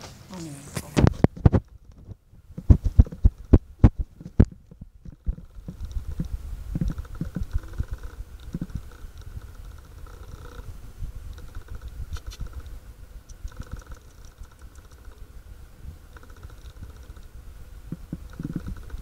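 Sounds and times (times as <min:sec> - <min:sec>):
puppies digging in soil: 0:00.0 - 0:10.0, 0:11.4 - 0:15.3
low steady rumble: 0:00.0 - 0:19.0.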